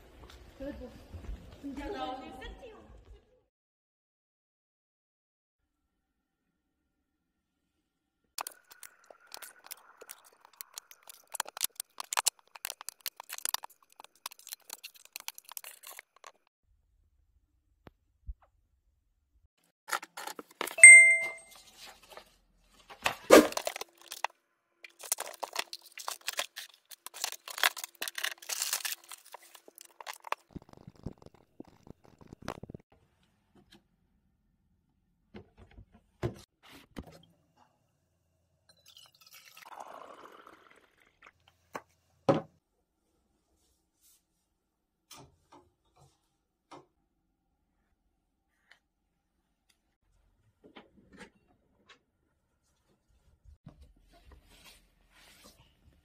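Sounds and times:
short clink: 20.8 - 21.5
paper shuffling and rustling: 25.0 - 30.5.

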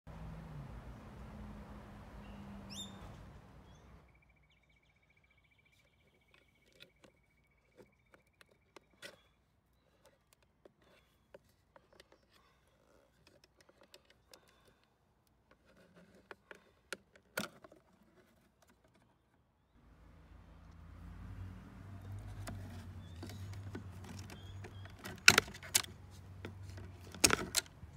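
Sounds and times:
plastic clicks and taps: 22.1 - 27.8
sharp plastic click: 22.2 - 27.8.

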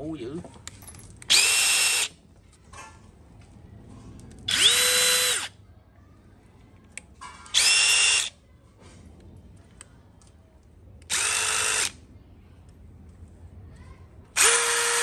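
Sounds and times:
impact driver motor whine: 14.4 - 15.0.

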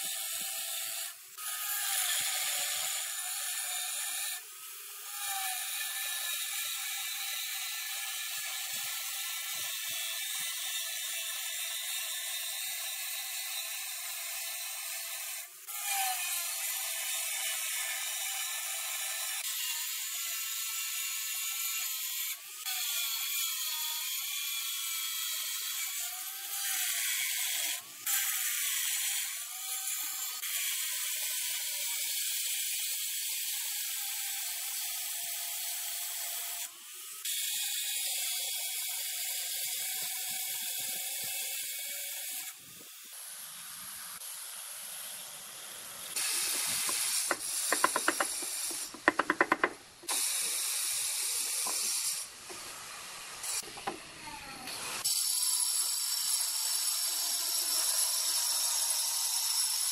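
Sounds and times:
angle grinder cutting stone: 0.0 - 59.9
rapid sharp knocks: 46.2 - 50.2.

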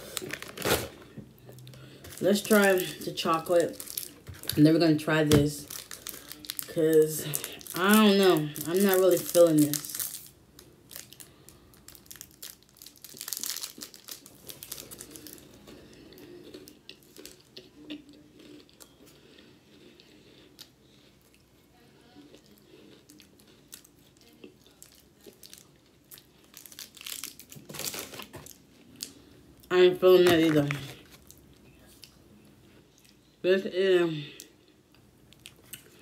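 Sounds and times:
plastic wrapper crinkling and tearing: 0.0 - 15.7, 23.1 - 29.1, 30.2 - 31.4
chewing and crunching: 5.6 - 29.2.

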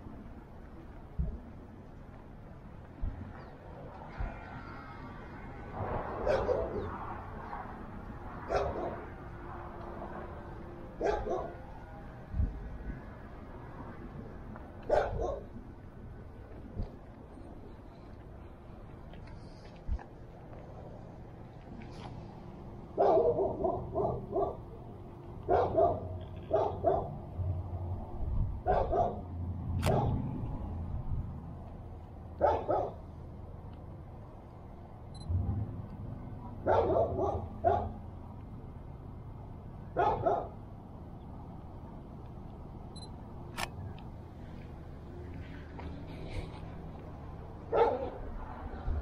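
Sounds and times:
dog barking: 6.2 - 6.9, 8.4 - 9.1, 11.0 - 11.6, 14.9 - 15.5, 23.0 - 24.7, 25.5 - 27.2, 28.6 - 29.3, 29.9 - 30.2, 32.4 - 33.0, 36.6 - 38.0, 40.0 - 40.6, 47.7 - 48.2.

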